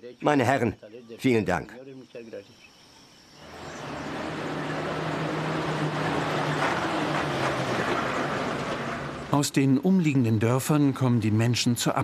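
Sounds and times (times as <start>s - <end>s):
bus engine humming: 3.4s - 10.3s.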